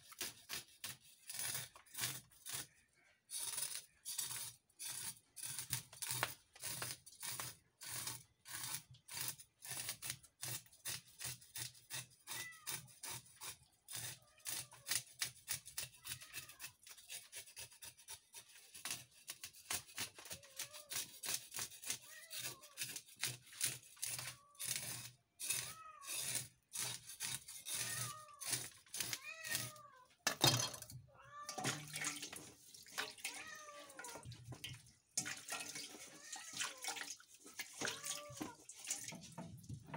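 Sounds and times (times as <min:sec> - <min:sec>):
knife scraping fish scales: 0:00.0 - 0:30.9.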